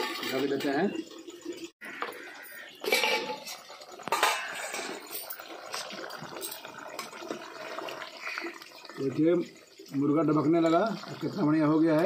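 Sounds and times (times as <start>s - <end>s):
curry bubbling in a pot: 2.6s - 12.0s.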